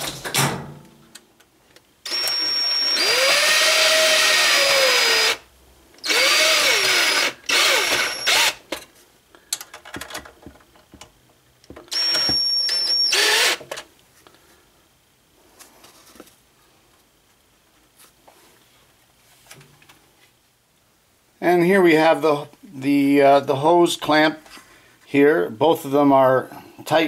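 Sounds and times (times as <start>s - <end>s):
cordless drill whining: 2.0s - 5.4s, 6.0s - 8.6s, 11.9s - 13.7s.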